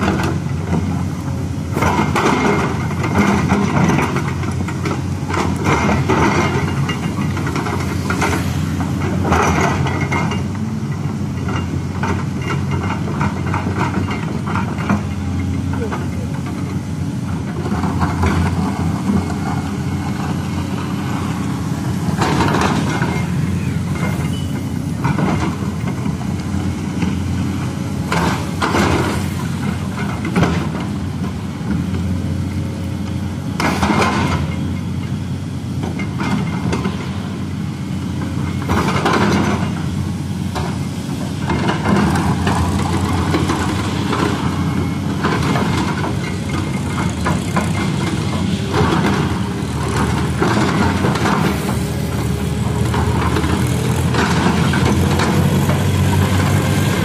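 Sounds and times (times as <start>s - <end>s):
excavator diesel engine running: 0.0s - 57.0s
excavator digging and scraping soil: 0.0s - 57.0s.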